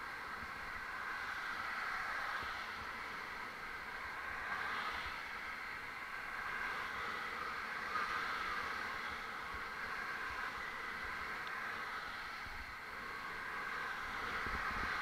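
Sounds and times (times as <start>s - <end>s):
car traffic passing: 0.0s - 15.0s
wind rumbling on microphone: 4.0s - 15.0s.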